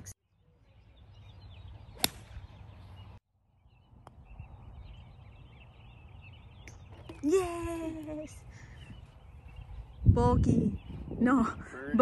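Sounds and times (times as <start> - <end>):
birds chirping faintly: 0.0 - 12.0
wind rumble on microphone: 8.9 - 12.0.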